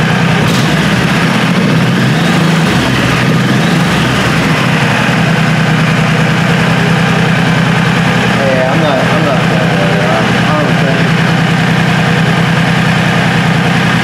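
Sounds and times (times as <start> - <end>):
motorcycle engine idling: 0.0 - 14.0.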